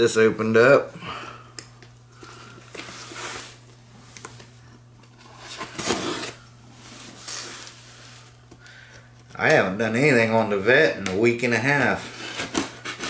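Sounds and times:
knife cutting packing tape: 5.4 - 6.4, 12.0 - 13.0.

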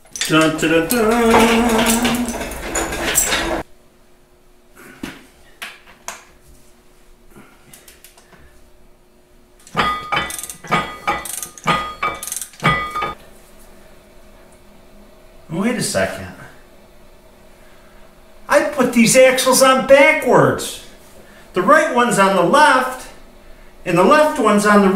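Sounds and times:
metal clattering and knocking: 0.0 - 3.6, 9.7 - 13.2
ringing metal strikes: 9.7 - 13.2.

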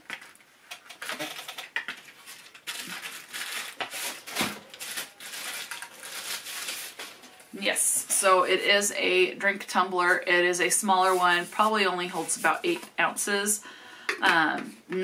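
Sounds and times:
packaging rustling and crinkling: 0.0 - 7.5.

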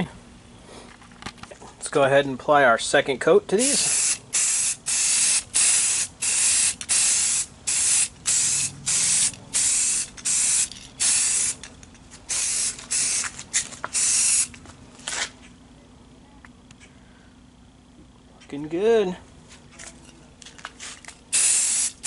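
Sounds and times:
aerosol spray hissing bursts: 3.6 - 11.6, 12.3 - 13.3, 13.9 - 14.5, 21.3 - 22.0.

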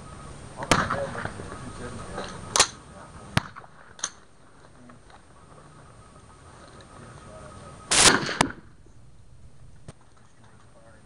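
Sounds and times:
rifle shots: 0.6 - 1.4, 7.9 - 8.8.

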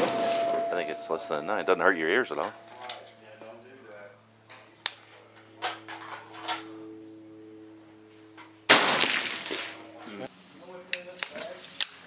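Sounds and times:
suppressed rifle shot: 8.7 - 9.8.

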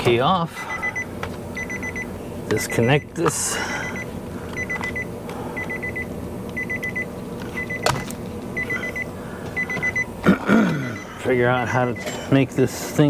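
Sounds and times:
steady low hum: 0.0 - 13.0
car warning chime beeping: 0.7 - 7.9, 8.6 - 10.1, 10.8 - 12.1.

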